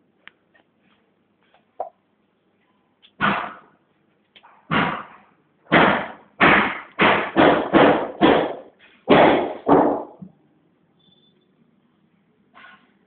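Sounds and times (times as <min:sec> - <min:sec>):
loud knocks: 0:03.2 - 0:03.7, 0:04.7 - 0:10.3.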